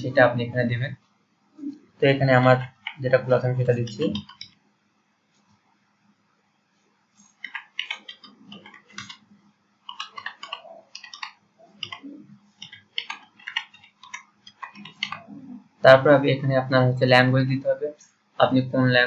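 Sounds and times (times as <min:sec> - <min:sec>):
keyboard key clicks: 0:07.4 - 0:09.2, 0:09.9 - 0:15.3.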